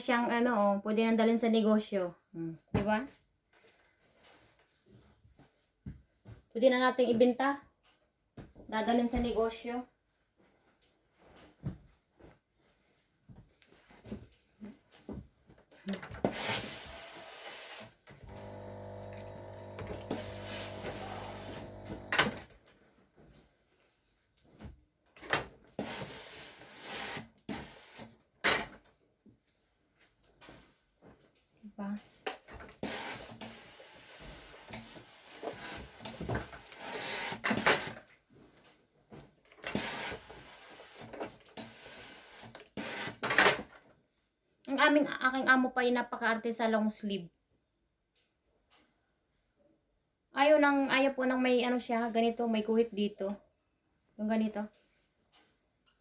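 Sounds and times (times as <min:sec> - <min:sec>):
steam hissing: 0:16.3 - 0:17.9, 0:20.0 - 0:22.2
iron sliding over cloth: 0:16.3 - 0:22.3, 0:25.8 - 0:28.0, 0:32.8 - 0:37.4
pump buzzing: 0:16.9 - 0:22.4.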